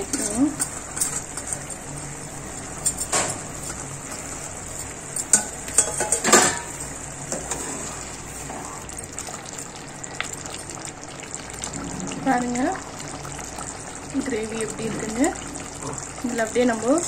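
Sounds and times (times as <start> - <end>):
curry bubbling: 0.0 - 17.0
metal ladle clinking on pan: 5.1 - 7.5.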